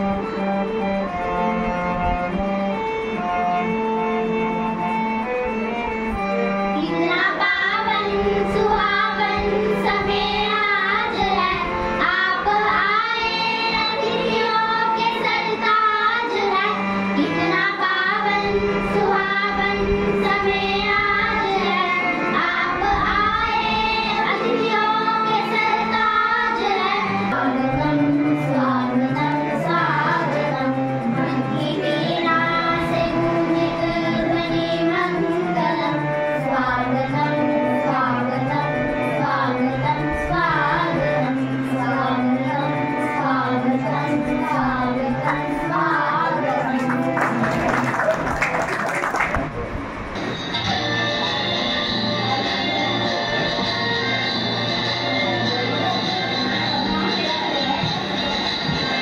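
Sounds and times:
musical accompaniment: 0:00.0 - 0:59.0
children singing: 0:06.8 - 0:47.6, 0:50.6 - 0:59.0.

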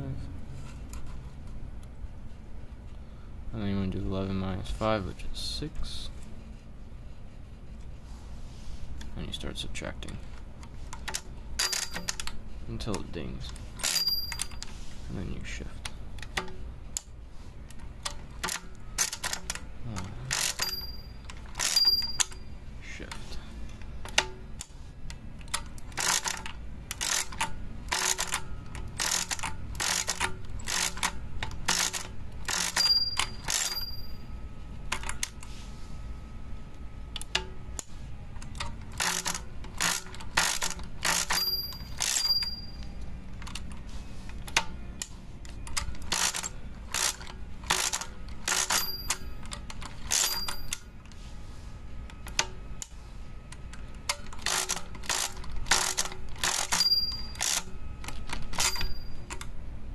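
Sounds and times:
mechanical calculator gears clicking: 0:10.9 - 0:14.7, 0:17.7 - 0:22.4, 0:24.0 - 0:34.2, 0:37.2 - 0:42.8, 0:43.4 - 0:50.9, 0:53.5 - 0:59.5
small bell dinging: 0:13.9 - 0:14.6, 0:20.6 - 0:21.2, 0:21.8 - 0:22.5, 0:32.8 - 0:34.3, 0:41.4 - 0:43.0, 0:48.8 - 0:49.4, 0:56.8 - 0:57.4, 0:58.7 - 0:59.2.

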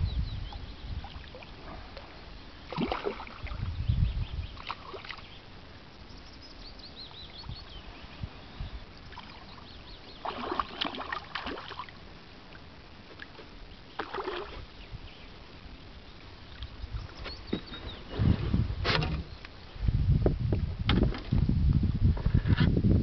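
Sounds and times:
fish splashing in water: 0:02.6 - 0:03.6, 0:10.2 - 0:12.0, 0:13.9 - 0:14.6.

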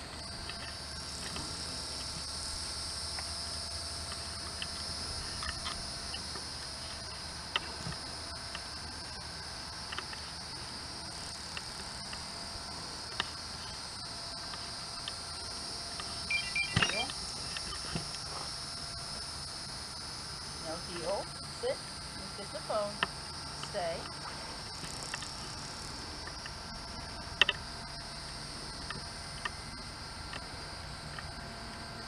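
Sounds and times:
high-pitched insect chorus: 0:00.0 - 0:32.0.

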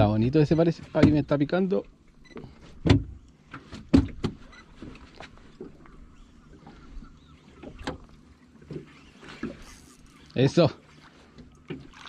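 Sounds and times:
knocks and clicks on boat: 0:00.0 - 0:09.8, 0:10.6 - 0:12.0.

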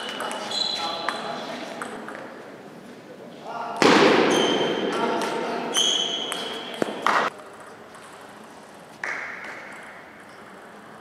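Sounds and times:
high squeak: 0:00.0 - 0:01.3, 0:05.7 - 0:06.8.

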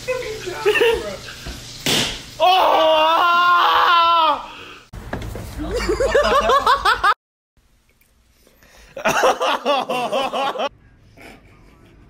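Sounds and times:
rhythmic laughter: 0:09.0 - 0:12.0.

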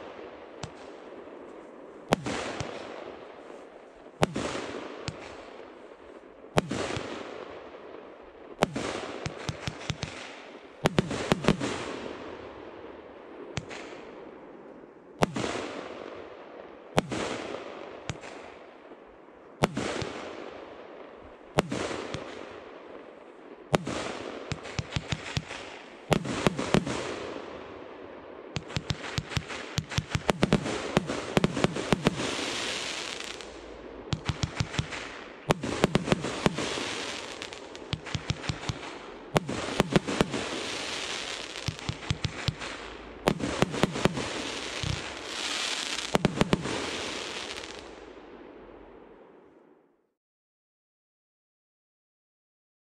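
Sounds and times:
firework bangs and pops: 0:00.6 - 0:03.3, 0:04.2 - 0:05.6, 0:06.5 - 0:07.6, 0:08.5 - 0:12.4, 0:13.6 - 0:14.2, 0:15.2 - 0:16.1, 0:17.0 - 0:18.6, 0:19.6 - 0:20.5, 0:21.5 - 0:27.8, 0:28.4 - 0:48.4.

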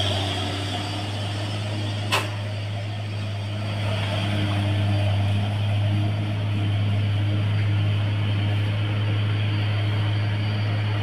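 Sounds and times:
diesel truck engine running: 0:00.0 - 0:11.0
sharp snap: 0:02.1 - 0:02.4.

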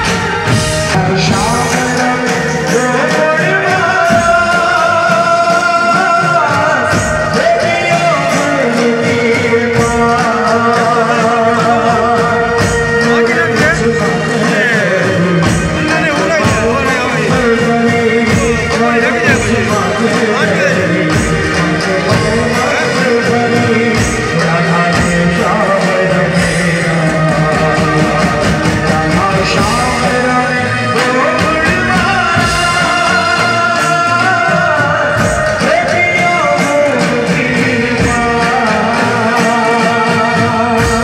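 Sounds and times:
melody instruments: 0:00.0 - 0:41.0
person singing into a microphone: 0:00.0 - 0:41.0
steady drum beat: 0:00.0 - 0:41.0.

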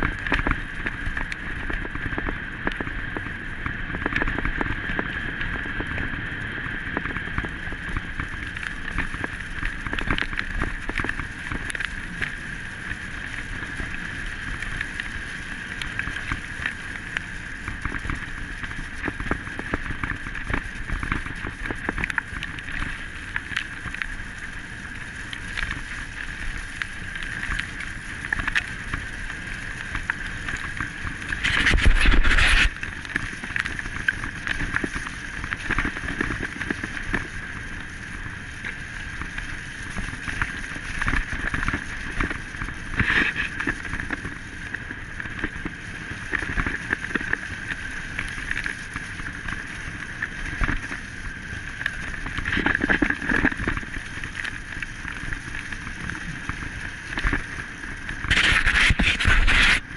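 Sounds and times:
wheels rattling over gravel: 0:00.0 - 0:59.9
high whine: 0:31.2 - 0:32.8, 0:58.3 - 0:59.9.

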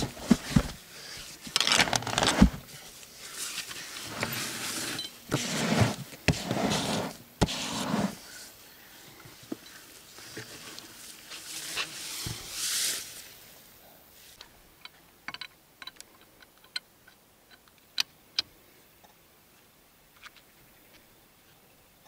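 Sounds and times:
scraping and rustling: 0:00.0 - 0:08.5.

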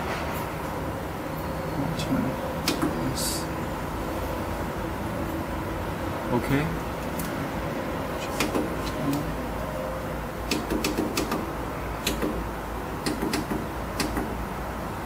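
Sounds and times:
steady low hum: 0:00.0 - 0:15.0
push buttons clicking: 0:02.6 - 0:03.1.

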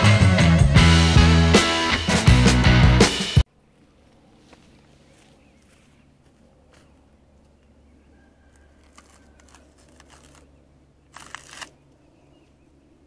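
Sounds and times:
scraping rustle: 0:08.6 - 0:10.5.

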